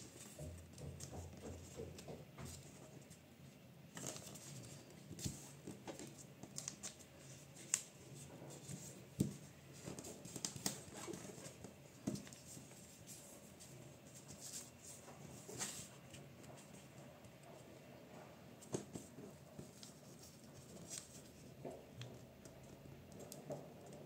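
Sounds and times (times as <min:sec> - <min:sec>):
paper rustling and crackling: 0:03.9 - 0:16.8, 0:18.6 - 0:21.6.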